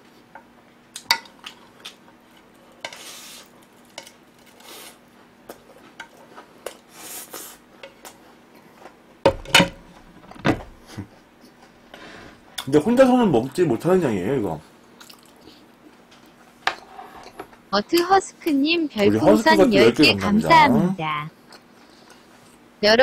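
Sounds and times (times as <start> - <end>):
plate knocking on table: 9.3 - 9.8.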